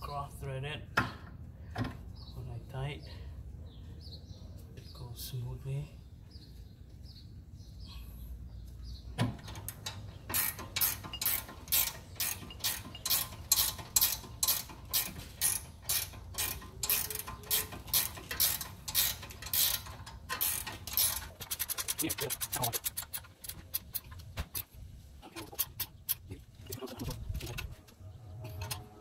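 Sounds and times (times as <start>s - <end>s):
socket ratchet clicking: 9.5s - 24.7s.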